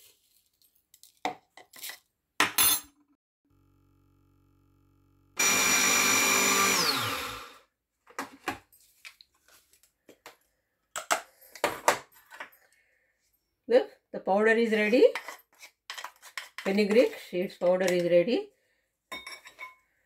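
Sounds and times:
mixer grinder whine: 3.5s - 7.7s.

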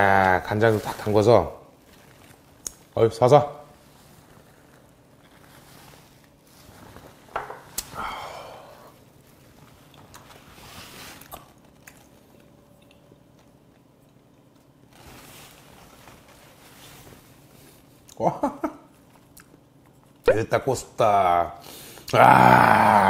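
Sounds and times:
breathy exhale: 7.8s - 9.0s
chewing and lip smacks: 11.2s - 14.8s.

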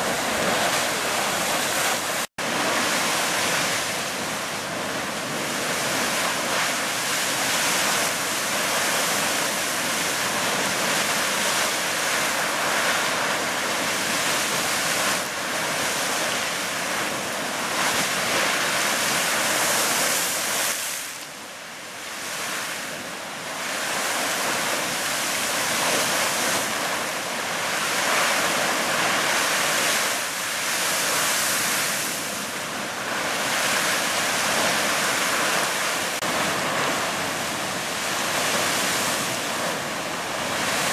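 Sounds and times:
geyser splashing water: 0.0s - 21.2s.

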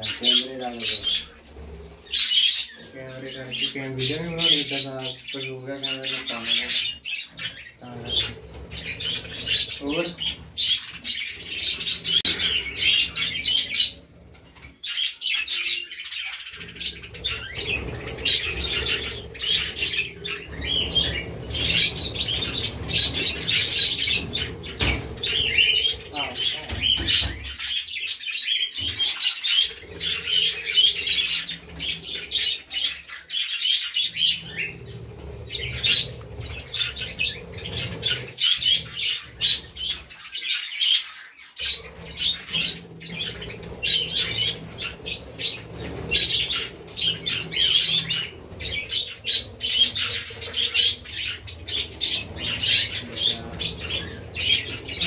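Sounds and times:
budgerigars chattering: 0.0s - 55.0s.

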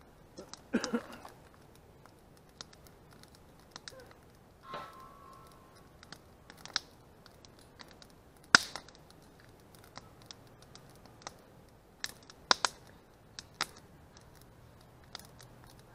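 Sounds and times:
campfire crackling and popping: 0.0s - 15.9s.

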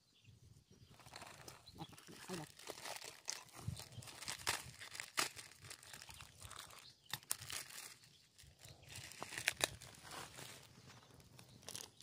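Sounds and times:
plastic wrapper crinkling and tearing: 0.9s - 12.0s.

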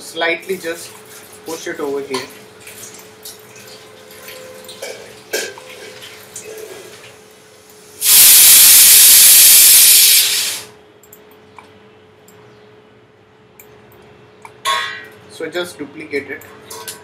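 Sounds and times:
loud steady hiss: 8.0s - 10.7s.

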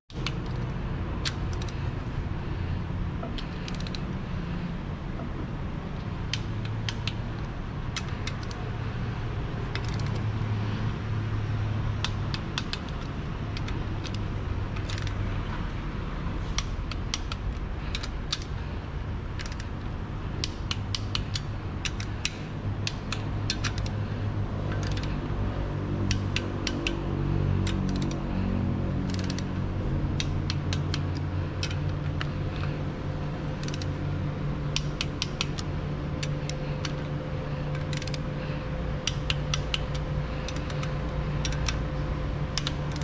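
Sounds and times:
steady low hum: 0.1s - 43.0s
ratchet wrench clicking: 0.2s - 1.9s, 3.2s - 4.1s, 6.2s - 8.7s, 9.7s - 10.4s, 11.9s - 15.4s, 16.5s - 25.4s, 26.0s - 28.3s, 29.0s - 32.8s, 33.5s - 34.0s, 34.6s - 41.9s, 42.6s - 43.0s.

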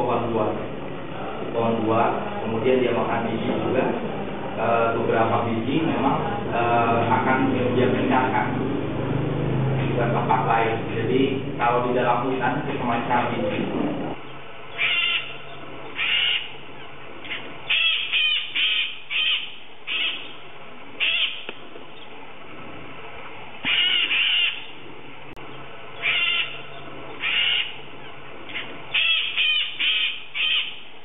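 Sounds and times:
parrot screeching: 14.7s - 16.6s, 17.3s - 20.3s, 21.0s - 21.5s, 23.6s - 24.7s, 26.0s - 27.8s, 28.5s - 30.8s.

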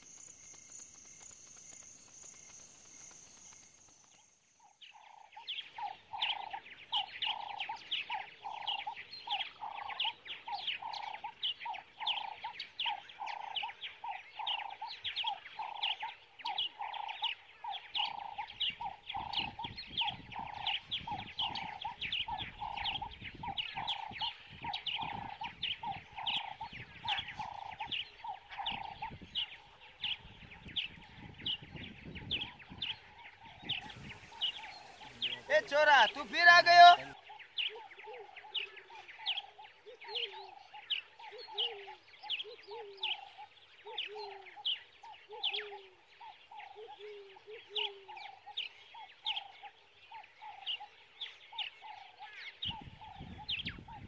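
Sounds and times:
high bird chirps: 18.0s - 37.9s.

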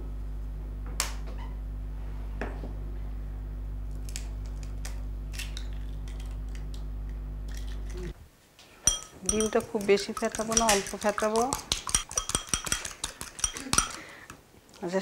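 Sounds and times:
low electrical hum: 0.0s - 15.0s
egg cracking: 3.9s - 8.1s, 8.8s - 14.4s.

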